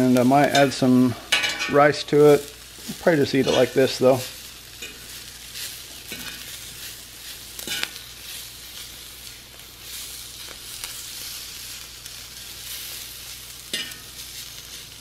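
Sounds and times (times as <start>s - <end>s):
vegetables and meat sizzling on griddle: 0.0s - 15.0s
metal fork clicking on griddle: 13.7s - 14.1s.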